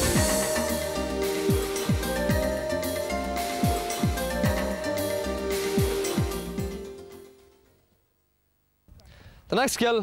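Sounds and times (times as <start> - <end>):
held music notes: 0.0 - 7.8.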